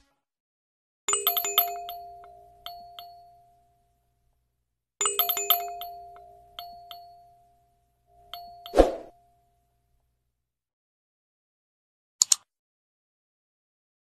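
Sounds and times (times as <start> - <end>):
chiming bell-like tones with clicks: 1.1 - 4.0, 5.0 - 9.6
light pings: 5.4 - 9.5.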